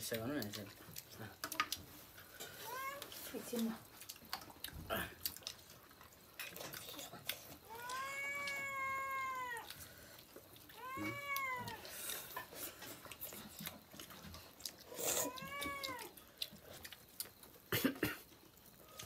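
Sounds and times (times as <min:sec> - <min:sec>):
eating clicks and smacks: 0:00.1 - 0:01.9, 0:03.6 - 0:08.8, 0:09.6 - 0:19.0
cat meowing: 0:02.6 - 0:03.2, 0:07.6 - 0:09.7, 0:10.7 - 0:11.9, 0:15.1 - 0:16.2.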